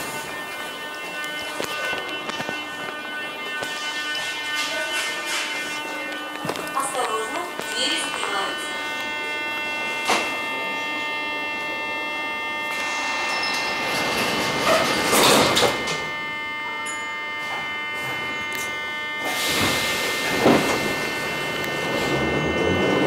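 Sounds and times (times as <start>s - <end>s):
steady electric whine: 0.0s - 23.0s.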